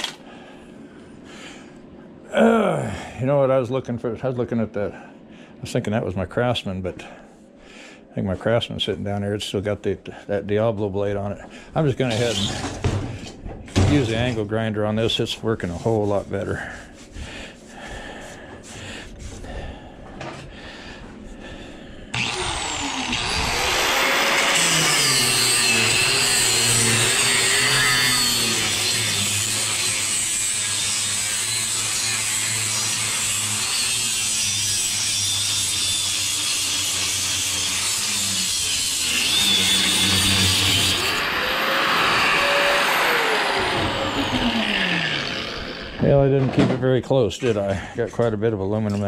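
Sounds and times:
angle grinder cutting metal: 0:12.0 - 0:12.8, 0:22.2 - 0:46.2.

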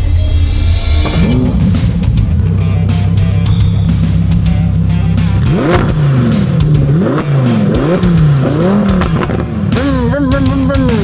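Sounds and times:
sports car engine revving: 0:01.0 - 0:11.0.

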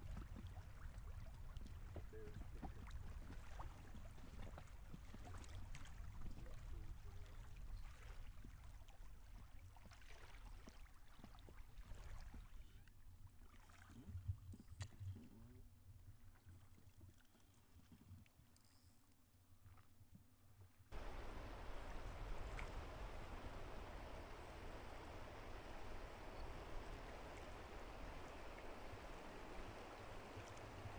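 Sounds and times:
river water flowing: 0:20.9 - 0:30.9
rush of water: 0:20.9 - 0:30.9.

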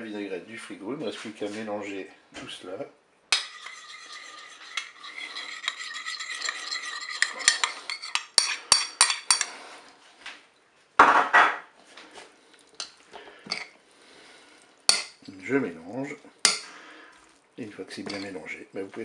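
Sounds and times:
spoon clinking in glass bowl: 0:03.4 - 0:09.5, 0:18.1 - 0:18.4.

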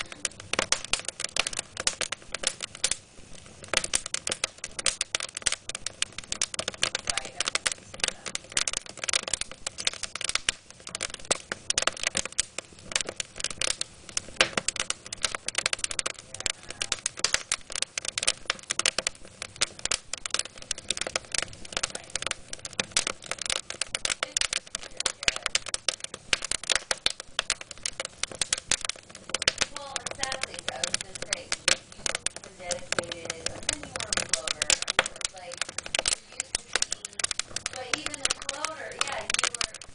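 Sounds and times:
wood fire crackling: 0:00.0 - 0:39.9.

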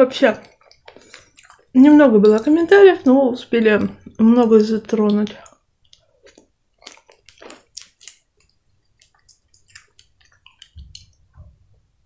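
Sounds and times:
wet chewing and lip smacks: 0:00.4 - 0:02.5, 0:04.4 - 0:11.5
person gulping a drink: 0:00.5 - 0:01.8, 0:05.4 - 0:11.5.

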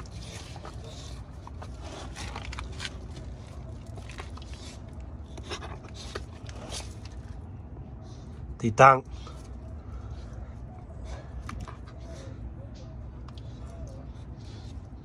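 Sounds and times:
dog nibbling and snuffling: 0:00.0 - 0:07.4.

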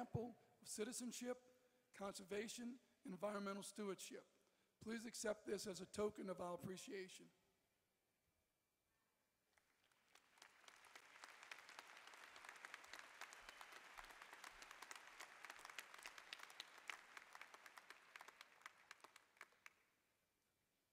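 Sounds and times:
audience applauding: 0:09.5 - 0:20.0.

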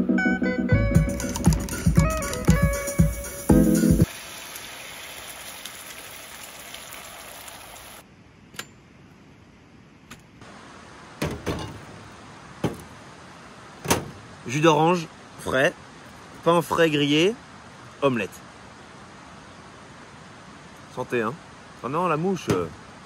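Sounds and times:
background music: 0:00.0 - 0:04.1
butter sizzling in a frying pan: 0:03.5 - 0:08.0.

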